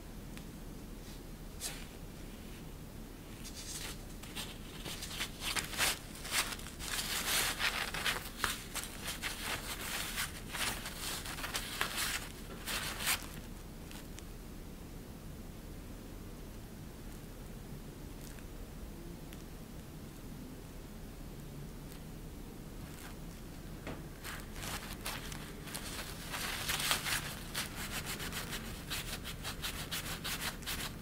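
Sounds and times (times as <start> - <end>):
crinkly fabric sheet rustling: 3.3 - 14.1, 22.8 - 31.0.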